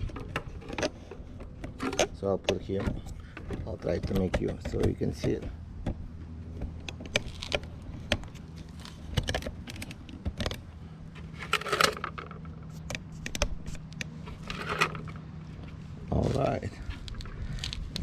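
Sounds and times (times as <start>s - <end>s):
light clicks and knocks: 0.0s - 10.7s.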